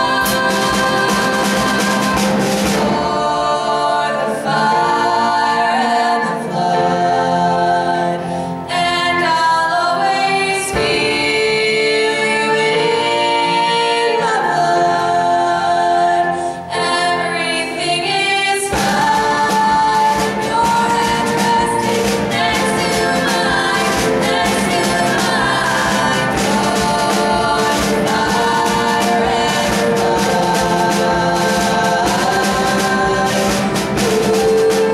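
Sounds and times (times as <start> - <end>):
drum kit playing: 0.0 - 5.0, 18.3 - 34.9
band accompaniment: 0.0 - 34.9
women singing in harmony: 0.0 - 34.9.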